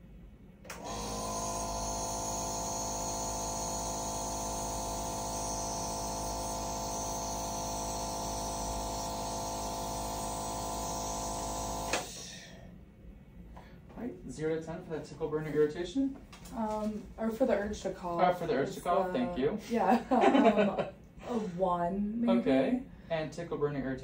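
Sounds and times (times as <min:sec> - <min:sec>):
nebulizer humming: 0:00.7 - 0:12.6.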